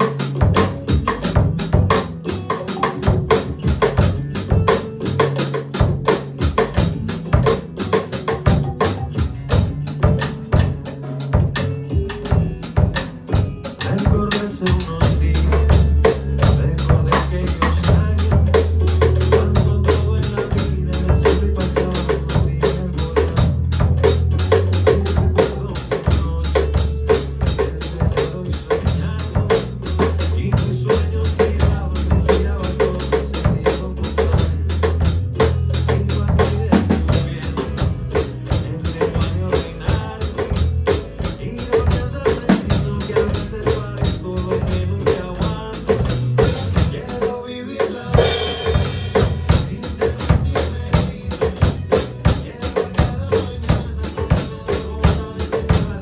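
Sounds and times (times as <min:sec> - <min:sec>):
drum kit groove: 0:00.0 - 0:56.0
recorded pop song: 0:00.0 - 0:56.0.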